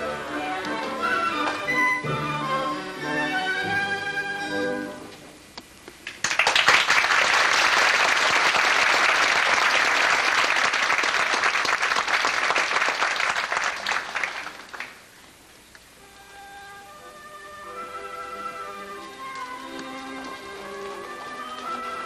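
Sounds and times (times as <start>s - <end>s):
audience applauding: 6.0s - 15.1s.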